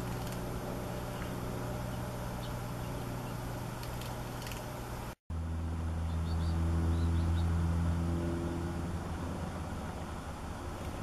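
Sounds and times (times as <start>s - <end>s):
vehicle engine humming: 0.0s - 11.0s
high bird chirps: 1.1s - 3.5s, 6.0s - 7.5s.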